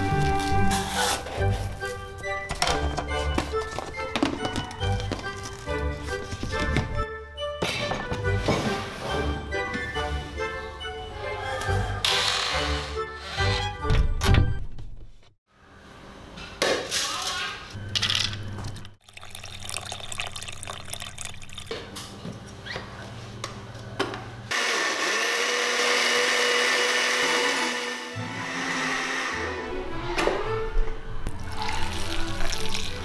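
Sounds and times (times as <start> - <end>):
blender motor grinding: 24.5 - 29.4.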